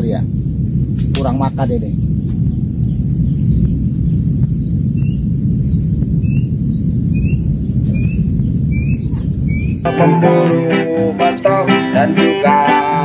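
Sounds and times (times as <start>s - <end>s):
wind on microphone: 0.0s - 9.9s
insects droning: 0.0s - 13.0s
bird chirping: 2.3s - 12.1s.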